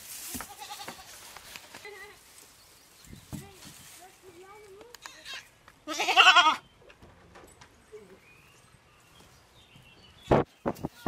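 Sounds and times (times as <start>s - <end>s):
goat bleating: 0.3s - 2.2s, 5.1s - 6.6s
soft bird chirps: 7.8s - 11.0s.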